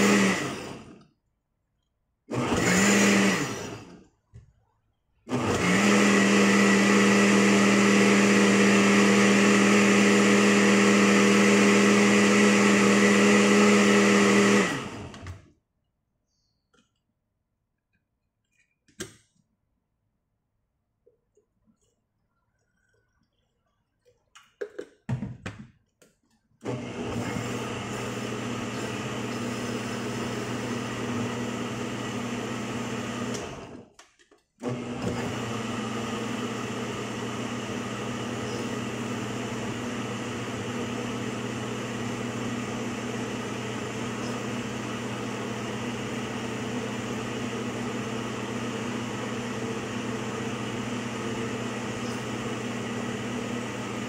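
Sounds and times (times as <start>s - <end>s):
blender motor humming: 0.0s - 1.1s, 2.3s - 4.1s, 5.3s - 15.4s, 26.6s - 33.9s, 34.6s - 54.0s.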